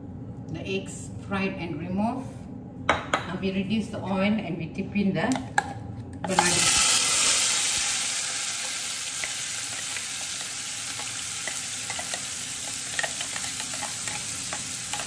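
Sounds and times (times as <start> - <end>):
paste sizzling in hot oil: 6.4 - 15.0.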